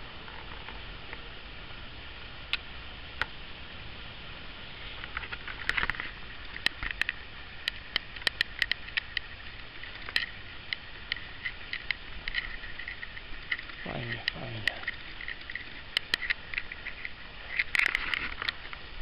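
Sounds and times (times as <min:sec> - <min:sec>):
background noise: 0:00.0 - 0:19.0
sharp clicks and ticks: 0:05.0 - 0:18.8.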